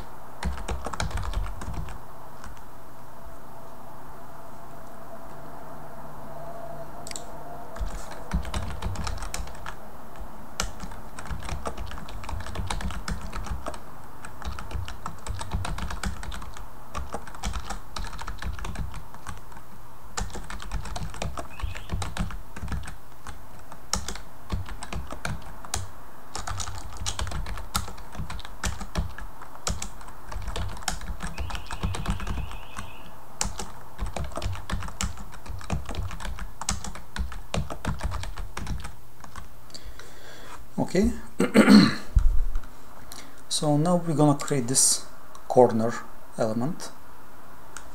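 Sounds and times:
computer keyboard typing: 0:00.0 - 0:02.6, 0:07.1 - 0:19.6, 0:20.2 - 0:39.5.

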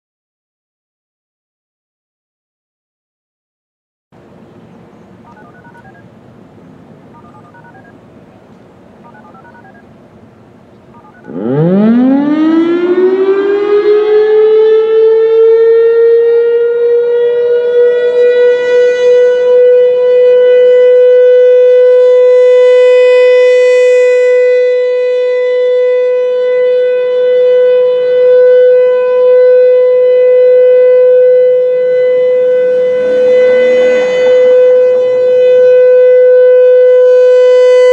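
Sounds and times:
warning siren: 0:09.1 - 0:09.9, 0:10.9 - 0:37.9.

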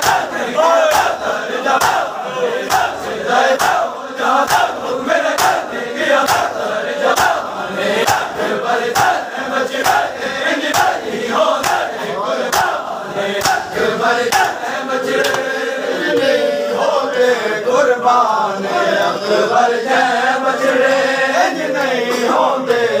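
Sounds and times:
men chanting in unison: 0:00.0 - 0:23.0
hands slapping chests: 0:01.8 - 0:02.0, 0:05.4 - 0:05.6, 0:06.2 - 0:06.5, 0:09.8 - 0:10.0, 0:11.6 - 0:11.9, 0:12.5 - 0:12.8, 0:13.4 - 0:13.7, 0:14.3 - 0:14.6, 0:15.2 - 0:15.5.

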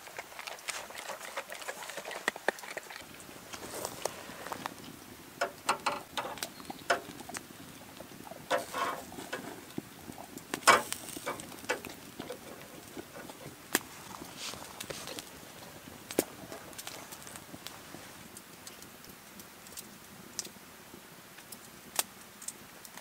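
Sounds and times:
campfire crackling and popping: 0:00.0 - 0:23.0.

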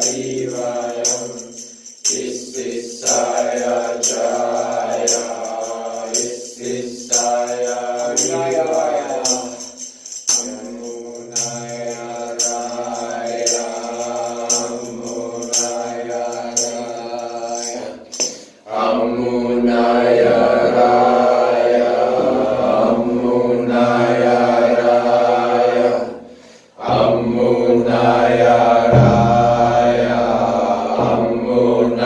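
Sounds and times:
jingling shaken percussion: 0:00.0 - 0:18.8, 0:27.9 - 0:32.0
chanted tones: 0:00.0 - 0:32.0.

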